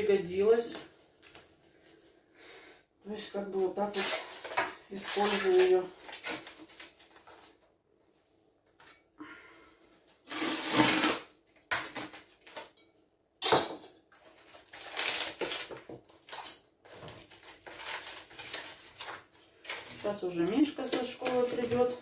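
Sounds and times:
kitchen rustles scrapes and knocks: 3.6 - 7.6, 13.4 - 22.0.

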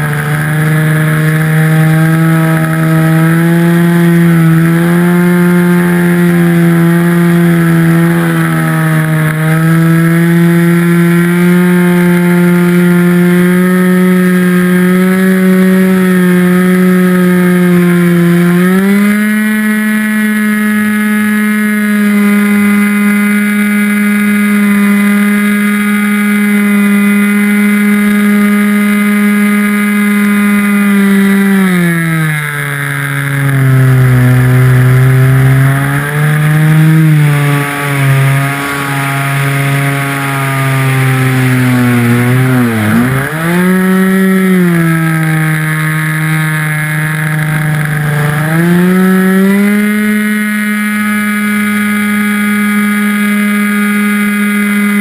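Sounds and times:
model airplane motor and propeller: 0.0 - 55.0.

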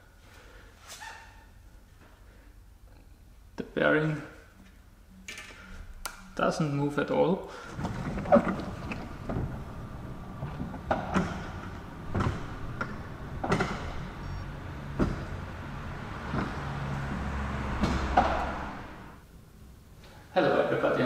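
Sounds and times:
garage door motor hum: 7.6 - 19.3.

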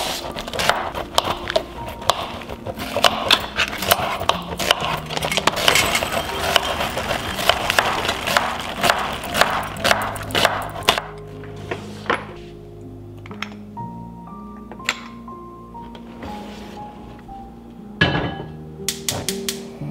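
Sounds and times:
soft background music: 0.0 - 19.9
knife chopping on wooden board: 0.4 - 11.1.

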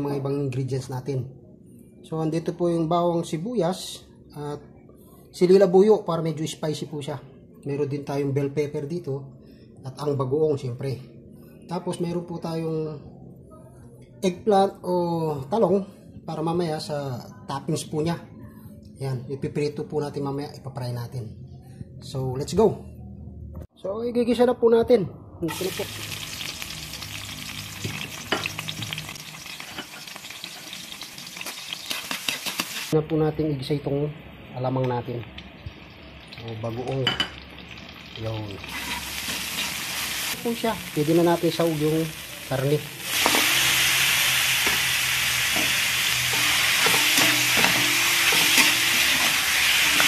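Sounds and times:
onion sizzling in hot oil: 25.5 - 33.0, 35.2 - 50.0
stirring scrapes and clicks in wok: 31.9 - 32.8.

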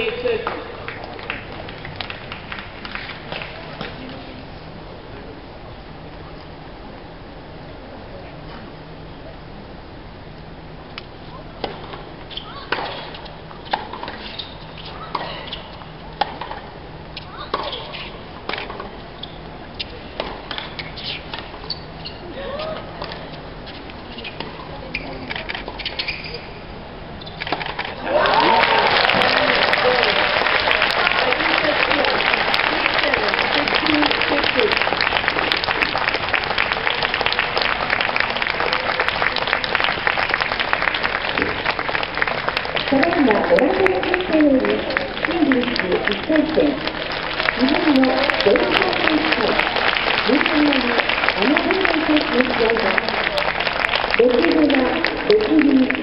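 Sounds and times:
spectators applauding: 0.8 - 3.8, 28.0 - 56.0
shoe squeaks: 12.3 - 12.7, 14.2 - 15.7, 19.2 - 22.3, 23.7 - 27.4.

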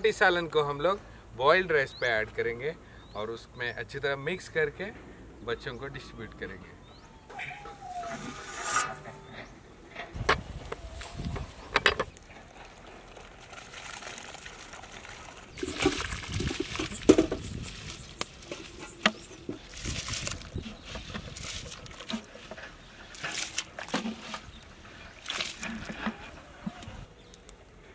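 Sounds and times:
metal ladle scraping bowl: 7.8 - 9.5
rice pouring and splashing into water: 12.5 - 17.2.

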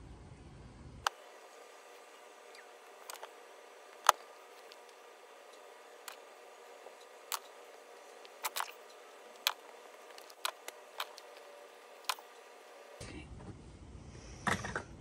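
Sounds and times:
paintbrushes clicking and tapping: 2.8 - 12.5.

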